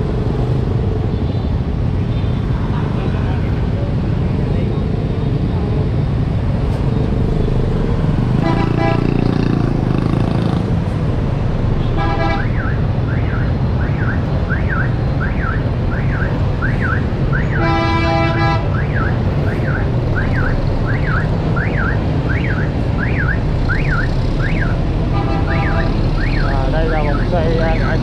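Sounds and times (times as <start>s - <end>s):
street traffic rumbling: 0.0s - 28.0s
electronic alarm chirping: 18.8s - 24.8s, 25.6s - 27.4s.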